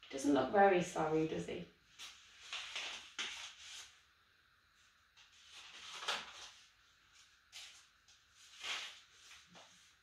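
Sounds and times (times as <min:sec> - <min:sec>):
book pages rustling: 0:01.9 - 0:04.0, 0:05.2 - 0:10.0.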